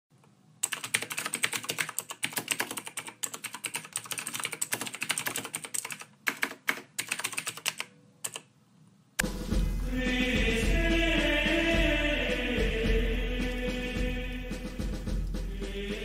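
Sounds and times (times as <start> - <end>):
keyboard typing clicks: 0.6 - 8.5.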